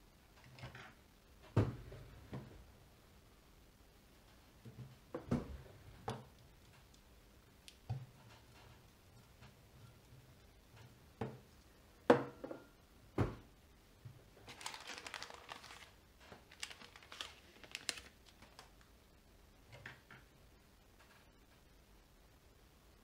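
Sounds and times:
plastic bag crinkling: 14.4s - 18.9s.

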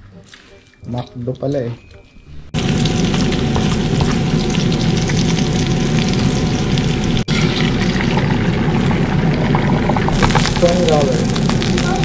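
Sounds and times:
crackling and hissing: 10.1s - 12.0s.

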